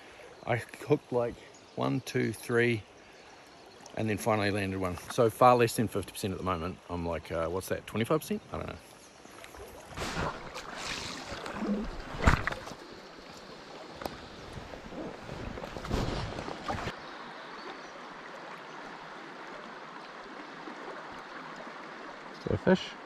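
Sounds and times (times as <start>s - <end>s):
river rushing over riffle: 9.8s - 17.0s.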